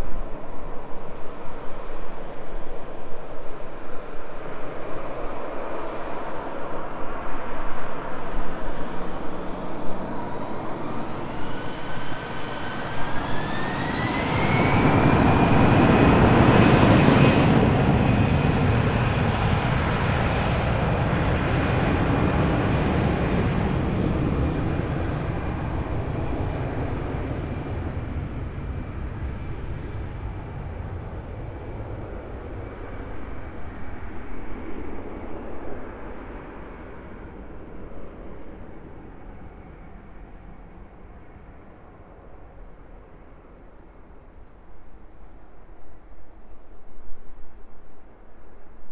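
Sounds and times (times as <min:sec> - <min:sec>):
jet engines spooling up: 0:08.8 - 0:20.6.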